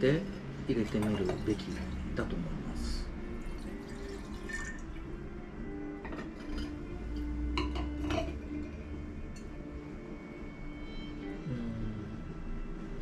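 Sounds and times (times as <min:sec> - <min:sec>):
wine glasses clinking: 0:00.0 - 0:02.3, 0:03.4 - 0:04.9, 0:06.0 - 0:09.6
quiet background music: 0:00.0 - 0:13.0.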